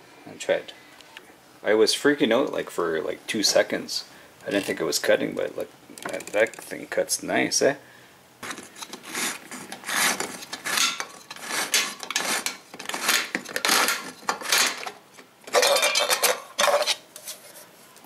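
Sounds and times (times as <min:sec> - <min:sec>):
can opener rasping metal: 0:08.4 - 0:17.3.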